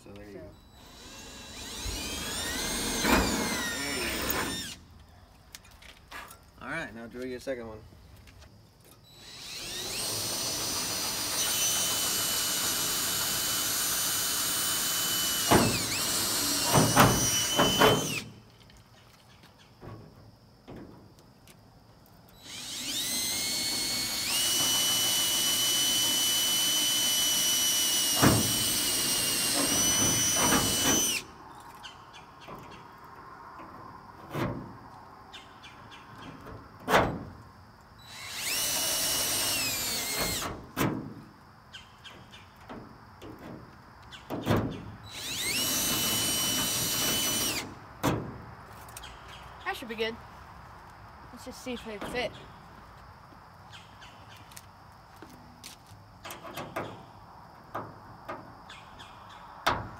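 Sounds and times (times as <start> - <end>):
cordless drill whining: 0.7 - 4.8, 9.1 - 18.3, 22.3 - 31.3, 38.0 - 40.6, 45.1 - 47.8.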